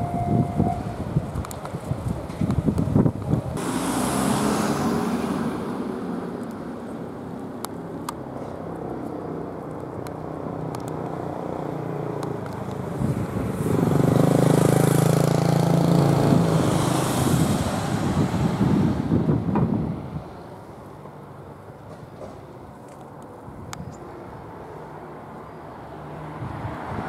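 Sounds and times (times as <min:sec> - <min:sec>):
vehicle engine hum: 0:00.0 - 0:27.0
car passing: 0:03.5 - 0:09.6, 0:10.2 - 0:20.2, 0:24.2 - 0:27.0.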